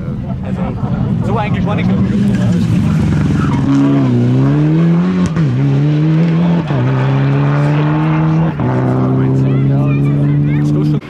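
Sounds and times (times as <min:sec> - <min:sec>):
car engine accelerating through gears: 0:00.9 - 0:11.0.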